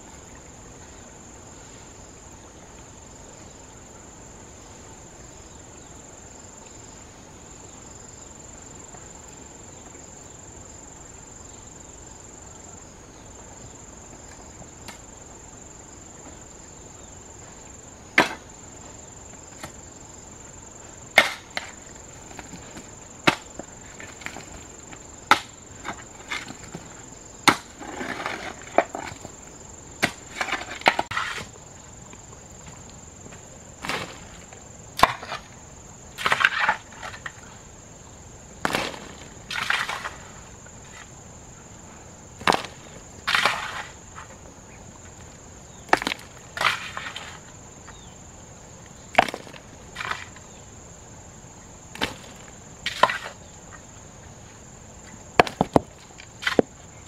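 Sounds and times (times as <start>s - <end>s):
hoe chopping hard earth: 18.2s - 18.5s, 21.2s - 21.8s, 23.2s - 23.6s, 27.4s - 29.2s, 30.0s - 31.5s, 35.0s - 35.5s, 38.6s - 40.3s, 42.4s - 43.9s
soil scraping: 21.2s - 31.6s, 32.6s - 35.6s, 36.2s - 37.5s, 38.6s - 41.2s, 42.4s - 44.4s, 45.8s - 48.1s, 49.2s - 50.6s, 52.0s - 53.5s.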